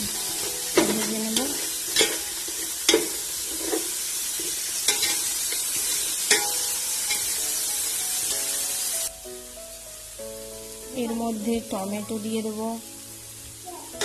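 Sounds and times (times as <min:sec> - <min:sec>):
food sizzling in hot fat: 0:00.0 - 0:14.0
metal spatula clinking on pot: 0:00.8 - 0:03.8, 0:04.9 - 0:05.6, 0:06.3 - 0:07.4.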